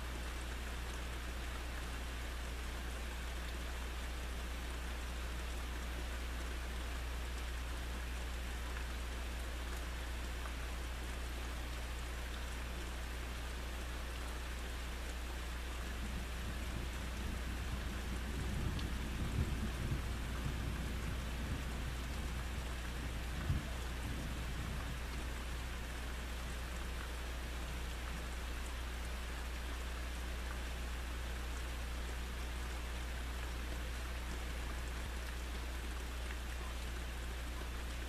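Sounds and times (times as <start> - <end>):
steady rain: 0.0 - 38.0
thunder rumbling: 16.1 - 25.0.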